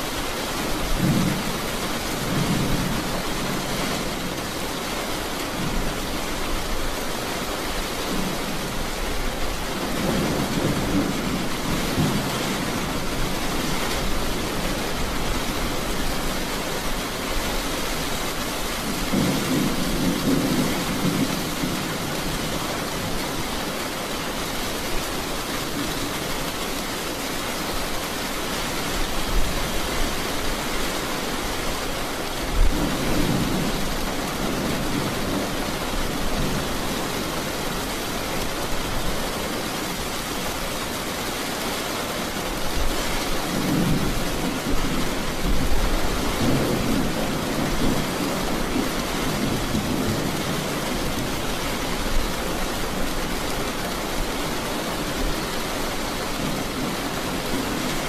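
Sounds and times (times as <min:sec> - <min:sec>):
steady rain: 0:00.0 - 0:58.0
thunder rumbling: 0:18.8 - 0:23.2.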